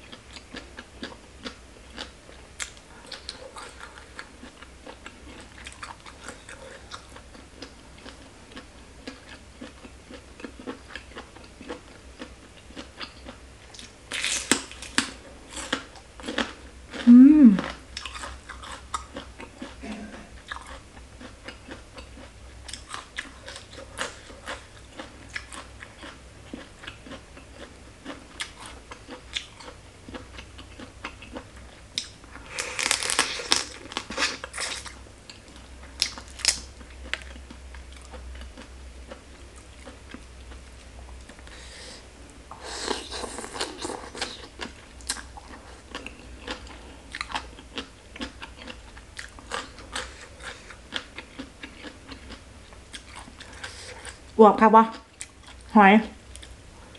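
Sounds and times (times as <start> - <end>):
chewing and lip smacks: 0.1 - 19.8, 20.4 - 40.3, 42.9 - 54.2
crab shell crunching: 32.0 - 34.9.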